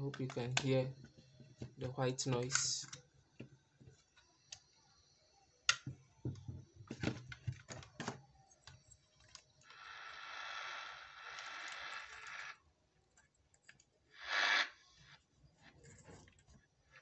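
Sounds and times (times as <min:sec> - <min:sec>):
radio static hiss: 0:09.7 - 0:12.6, 0:14.2 - 0:15.2.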